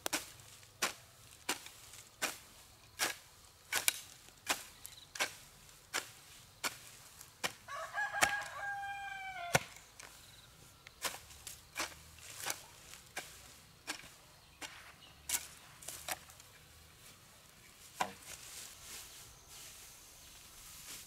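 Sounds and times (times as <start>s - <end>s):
rooster crowing: 7.7s - 9.8s.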